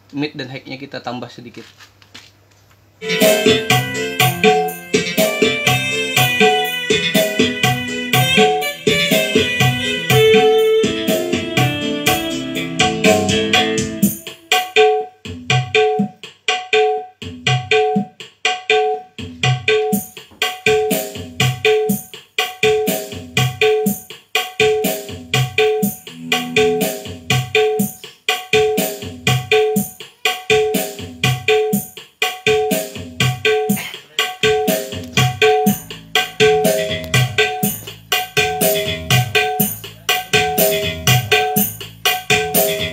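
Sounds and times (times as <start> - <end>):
keyboard melody: 3.0 - 15.2, 25.8 - 28.0, 34.3 - 42.9
quick drum rhythm: 3.0 - 42.9.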